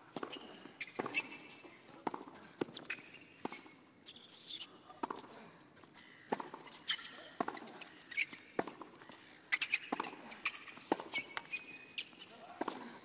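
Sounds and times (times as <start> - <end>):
shoes squeaking on court: 0.0 - 13.0
tennis ball hit by racquet: 12.6 - 12.8.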